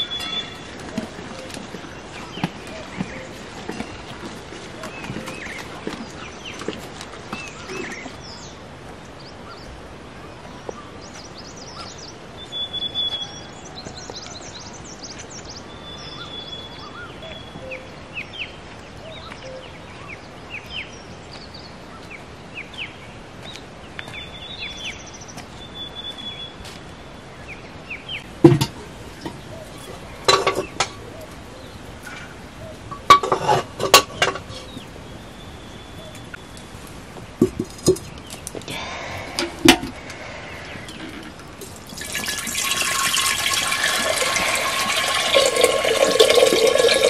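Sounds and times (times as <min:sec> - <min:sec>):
small birds chirping: 0:00.0 - 0:42.3
metal pots clanking on stone: 0:28.5 - 0:29.4, 0:30.2 - 0:31.0, 0:32.9 - 0:34.8, 0:37.4 - 0:38.2, 0:40.9 - 0:47.0.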